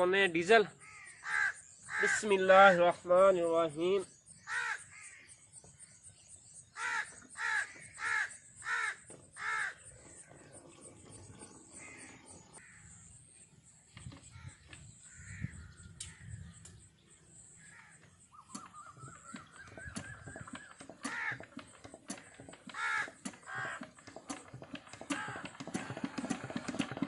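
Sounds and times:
crow cawing: 0.8 - 2.2, 4.4 - 5.4, 6.8 - 9.8, 17.6 - 18.0, 19.7 - 21.6, 22.7 - 23.9, 25.1 - 25.5.

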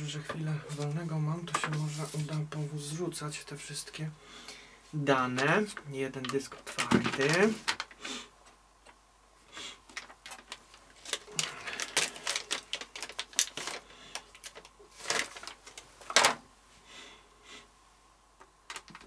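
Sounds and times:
foil bag crinkling: 6.6 - 8.0, 9.9 - 16.4.

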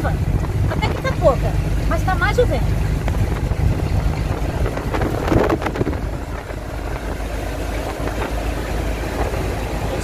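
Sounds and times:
truck engine and road rumble: 0.0 - 10.0
wind noise: 2.7 - 10.0.

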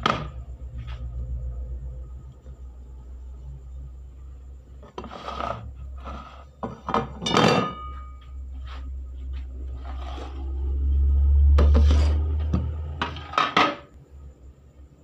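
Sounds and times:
steady low hum: 0.0 - 15.0
metal baking pan clattering: 6.6 - 8.0, 13.0 - 13.9.

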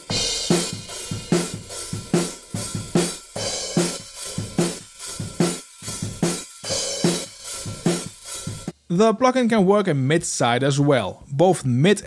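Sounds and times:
drum loop with kick snare and hi-hat: 0.0 - 8.9.

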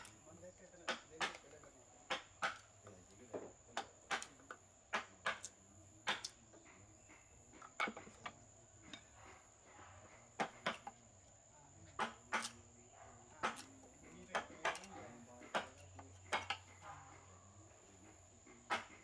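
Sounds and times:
wooden mallet striking a chisel: 0.8 - 2.8, 3.4 - 6.4, 7.6 - 9.1, 10.4 - 11.0, 11.9 - 12.6, 13.4 - 17.1, 18.6 - 19.0.

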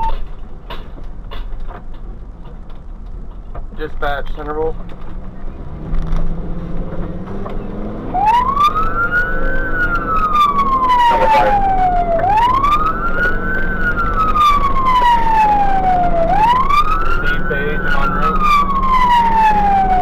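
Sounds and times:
truck engine drone: 0.0 - 20.0
fire engine siren wailing: 7.3 - 20.0.

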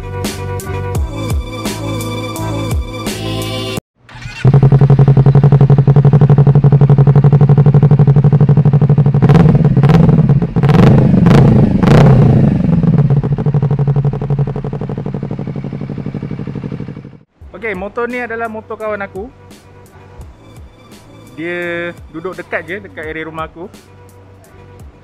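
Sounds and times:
motorcycle engine idling and revving: 4.0 - 17.3.

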